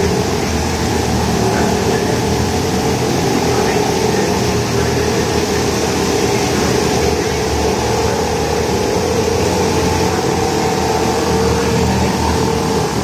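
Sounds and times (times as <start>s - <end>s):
churning water: 0.0s - 13.0s
small boat motors running: 0.0s - 13.0s.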